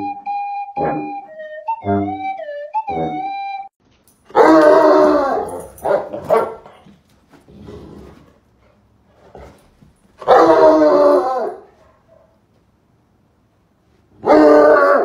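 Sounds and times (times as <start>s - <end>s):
dog barking: 4.3s - 6.8s, 10.2s - 10.8s.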